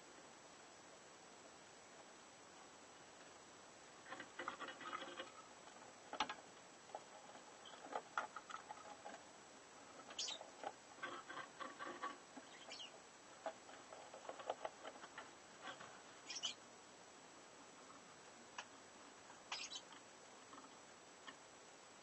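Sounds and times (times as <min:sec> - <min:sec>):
soft ticking bird chatter: 0:04.0 - 0:09.2, 0:09.9 - 0:16.7, 0:17.7 - 0:21.4
short high bird chirp: 0:16.3 - 0:16.6.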